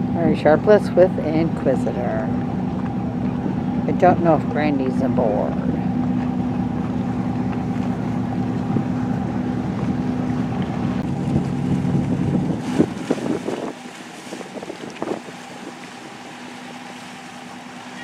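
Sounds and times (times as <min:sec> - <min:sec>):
wind on microphone: 0:00.0 - 0:16.4
motorboat engine running: 0:00.0 - 0:18.0.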